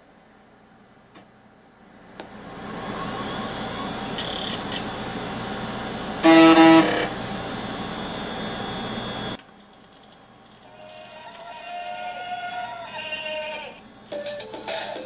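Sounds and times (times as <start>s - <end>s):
laptop whirring hum: 0.0s - 15.0s
loud electronic beep: 2.6s - 4.9s, 6.2s - 7.2s.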